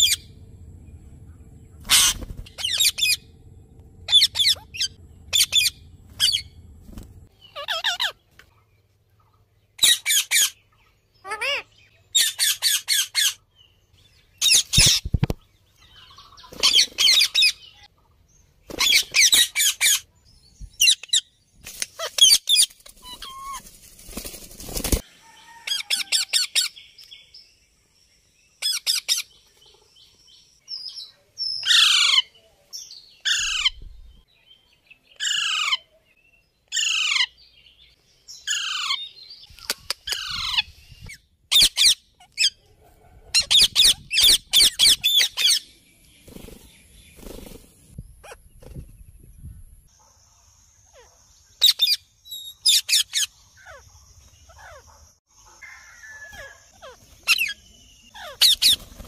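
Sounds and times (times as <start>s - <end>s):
parakeets screeching: 0.0s - 0.4s, 1.8s - 3.3s, 4.1s - 6.6s, 7.4s - 8.2s, 9.8s - 10.6s, 11.2s - 13.4s, 16.5s - 17.6s, 18.7s - 20.0s, 22.0s - 23.7s, 31.7s - 32.3s, 33.2s - 33.8s, 35.2s - 35.8s, 36.7s - 37.3s, 38.5s - 39.0s, 41.5s - 42.5s, 43.3s - 45.6s, 55.6s - 59.0s.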